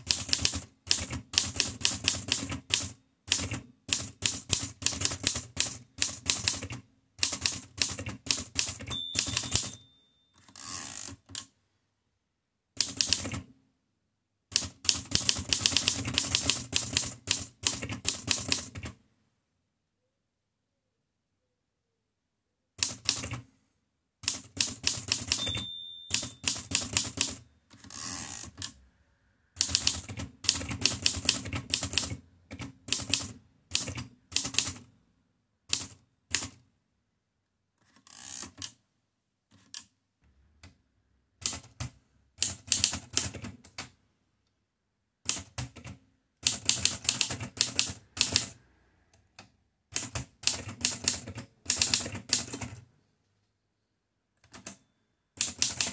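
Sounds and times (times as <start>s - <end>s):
typewriter keystroke clacks: 0.0s - 9.8s, 12.8s - 13.5s, 14.5s - 19.0s, 24.2s - 28.8s, 29.6s - 34.8s, 41.4s - 43.9s, 45.2s - 48.6s, 49.9s - 52.8s, 55.4s - 55.9s
typewriter carriage return: 7.3s - 11.4s, 24.3s - 28.8s
typewriter margin bell: 8.7s - 10.8s, 25.2s - 27.4s.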